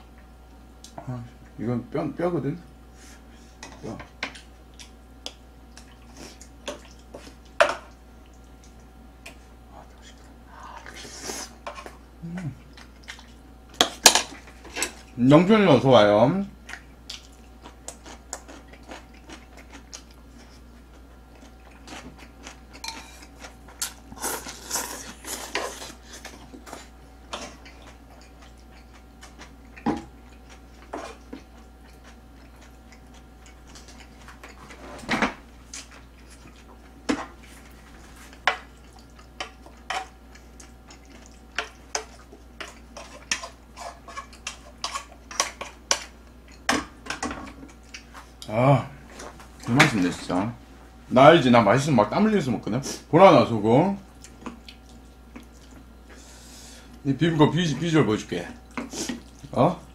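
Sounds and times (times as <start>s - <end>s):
utensils clinking on pan and bowls: 22.8s - 23.2s.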